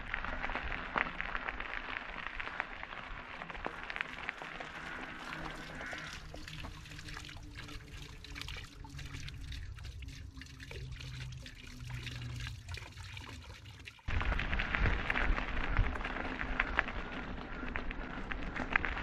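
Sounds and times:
tyres crackling on gravel: 0.0s - 6.3s, 14.1s - 19.0s
low hum of bike drive: 0.0s - 13.0s, 14.1s - 19.0s.

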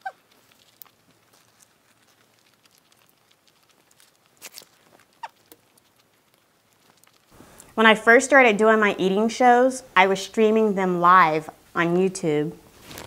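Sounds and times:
mouth clicks and lip smacks: 0.0s - 7.8s.

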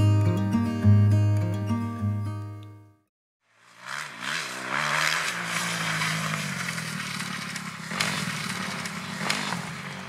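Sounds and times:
dirt bike engines revving: 3.6s - 10.0s.

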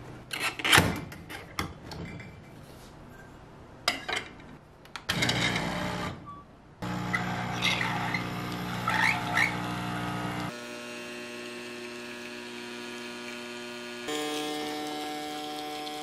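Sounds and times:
espresso machine pump humming: 6.8s - 16.0s.

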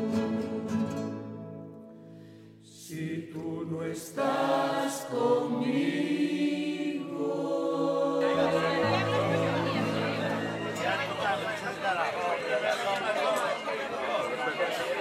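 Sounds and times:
choir singing with music: 0.0s - 15.0s
crowd chatter: 8.0s - 15.0s.

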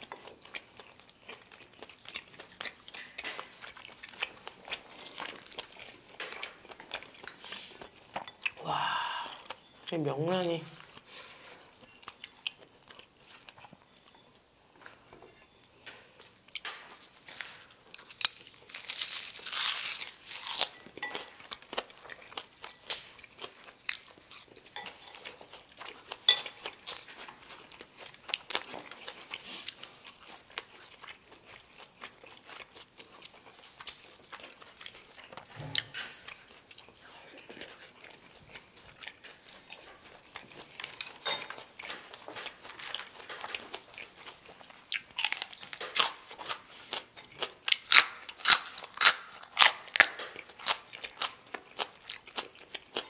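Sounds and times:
crunchy chewing: 0.0s - 9.9s, 10.6s - 53.0s.

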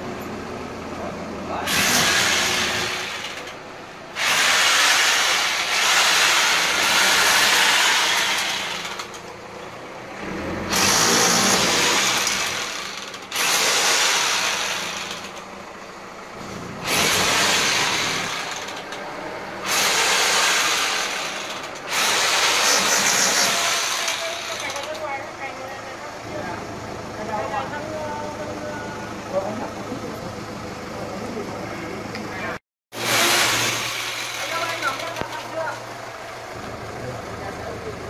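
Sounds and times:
power tool on masonry: 1.5s - 9.4s, 10.6s - 15.5s, 16.7s - 25.2s, 32.9s - 36.0s.

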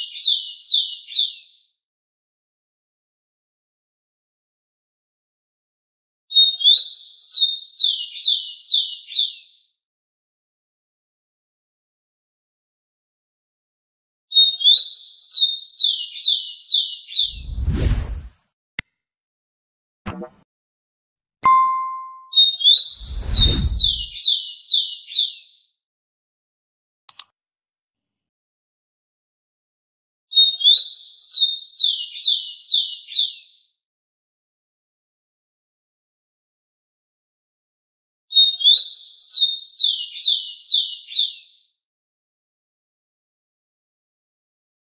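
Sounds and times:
quick clicks: 27.1s - 27.3s.

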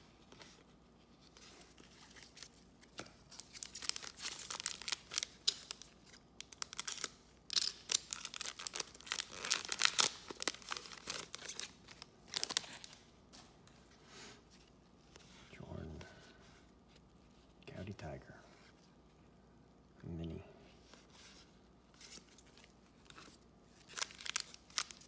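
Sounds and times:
foil wrapper crinkling and tearing: 3.2s - 13.0s, 22.0s - 25.0s.

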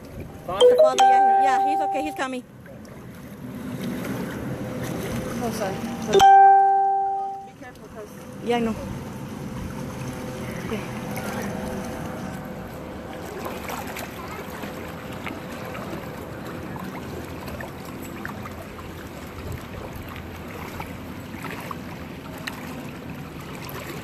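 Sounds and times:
water sloshing and splashing: 0.0s - 24.0s.

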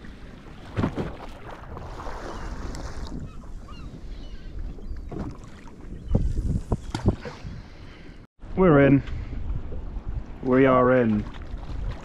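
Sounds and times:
water lapping around boat: 0.0s - 8.3s, 9.1s - 12.0s
wind buffeting microphone: 1.7s - 7.8s, 8.5s - 12.0s.

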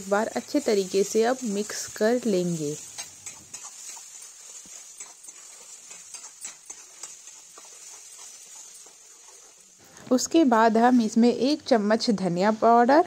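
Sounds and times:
masala sizzling in hot oil: 0.0s - 13.0s
metal spatula clicking: 2.8s - 9.6s.

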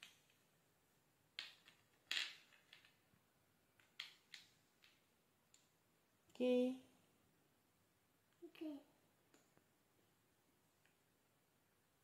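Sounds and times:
puzzle pieces tapping wooden board: 1.4s - 3.0s.

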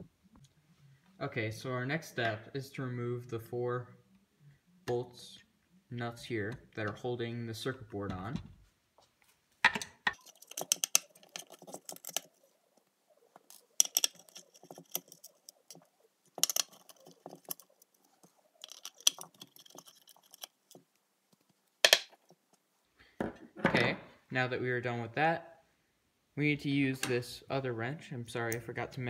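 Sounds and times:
nut driver clicking and scraping: 10.1s - 12.5s, 13.3s - 22.6s.

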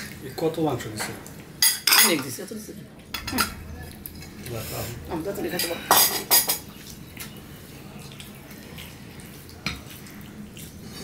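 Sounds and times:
ceramic plates clinking: 1.0s - 2.4s, 5.6s - 6.7s.

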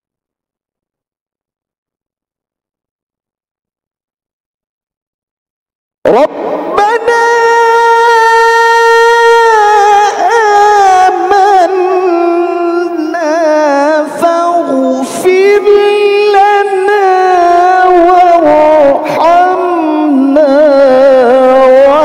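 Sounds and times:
man reciting melodically: 6.1s - 22.0s.

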